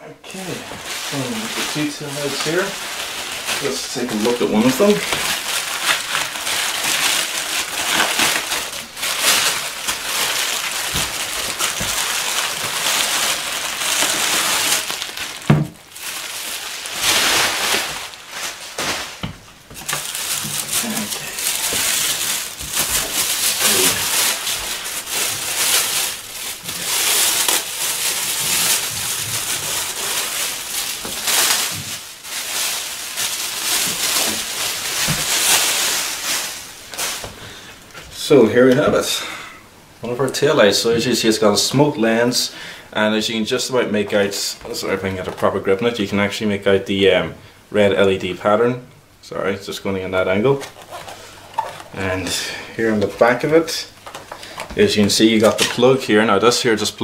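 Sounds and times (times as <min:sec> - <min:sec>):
bubble wrap and plastic crinkling: 0:00.2 - 0:39.2, 0:40.0 - 0:47.2, 0:49.4 - 0:57.0.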